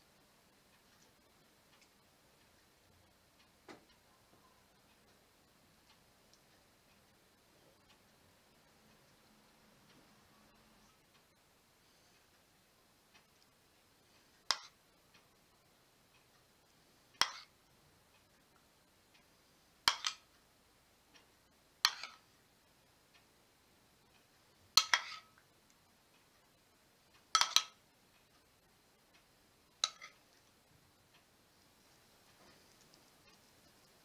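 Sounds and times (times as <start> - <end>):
metal spoon clinking on dish: 21.9 - 22.2, 24.8 - 25.4, 27.4 - 27.8, 29.8 - 30.2.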